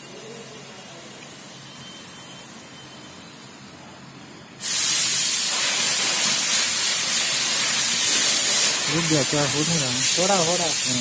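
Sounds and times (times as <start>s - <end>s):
loud steady hiss: 3.7s - 11.0s.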